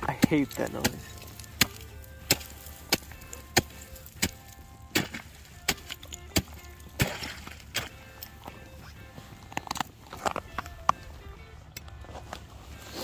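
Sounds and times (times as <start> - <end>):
ice chisel striking ice: 0.0 - 8.0.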